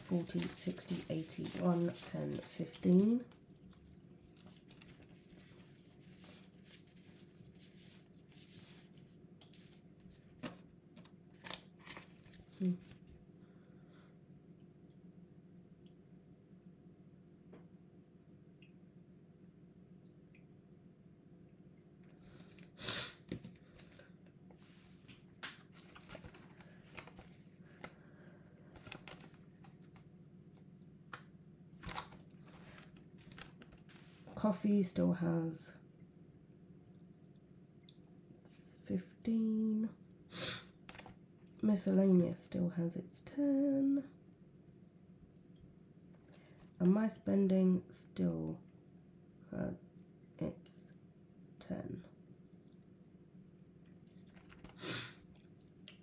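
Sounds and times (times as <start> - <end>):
paper rustling: 0.0 - 3.0, 4.4 - 13.2, 24.9 - 28.0, 28.6 - 30.1, 31.8 - 34.4, 40.9 - 41.2, 54.1 - 54.8
paper banknotes rustling: 0.0 - 3.1, 25.5 - 27.9, 28.7 - 30.0
faint steady hum: 0.0 - 56.0.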